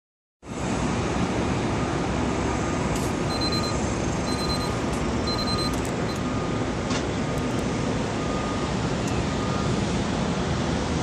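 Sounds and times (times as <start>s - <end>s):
faint short beeps: 3.3s - 6.5s.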